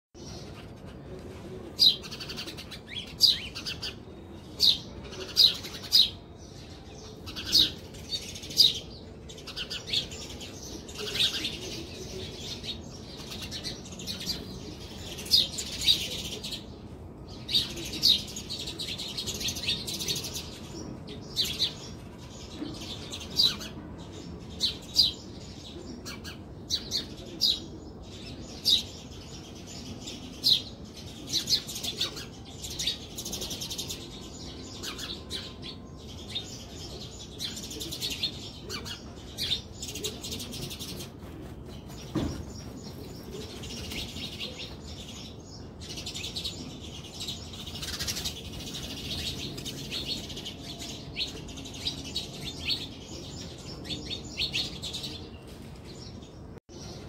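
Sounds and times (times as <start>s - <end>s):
sparrows chirping: 0.2s - 57.0s.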